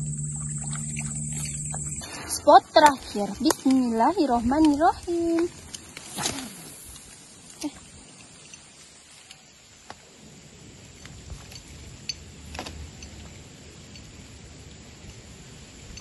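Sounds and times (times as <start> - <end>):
faint low rumble: 0.0 - 6.0.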